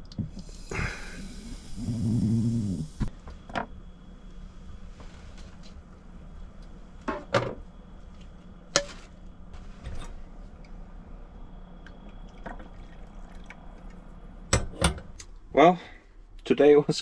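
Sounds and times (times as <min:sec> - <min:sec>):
steady low hum: 0:00.0 - 0:17.0
liquid pouring or dripping: 0:11.8 - 0:14.3.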